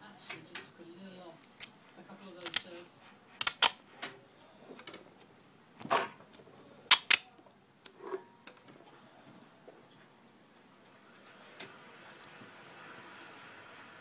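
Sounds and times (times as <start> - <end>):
sharp clicks: 3.4 - 3.8, 6.9 - 7.3.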